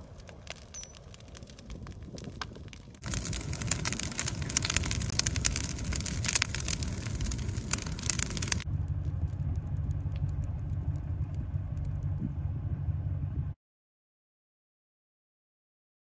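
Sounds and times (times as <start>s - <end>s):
burning twigs crackling and popping: 0.0s - 12.2s
low rumble of flames: 0.0s - 13.6s.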